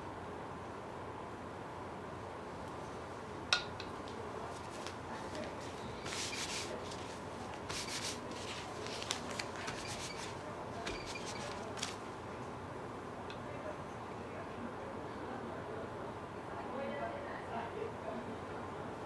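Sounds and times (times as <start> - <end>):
paper rubbing on paper: 4.6 - 12.0.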